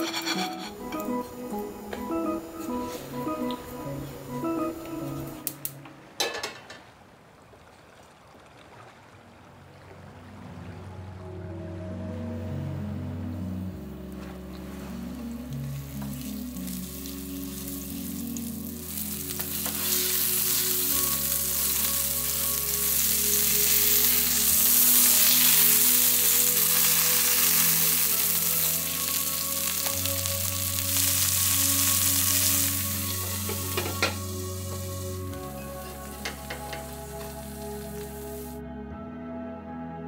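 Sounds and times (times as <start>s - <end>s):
fish sizzling in a pan: 15.8s - 38.6s.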